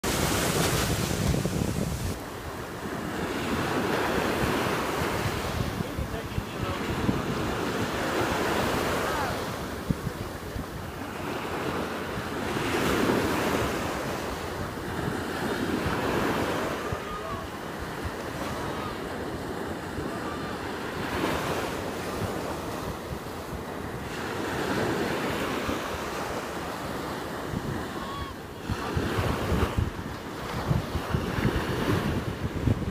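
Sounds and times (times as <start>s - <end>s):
surf breaking on a beach: 0.0s - 32.9s
wind rumbling on microphone: 0.0s - 32.9s.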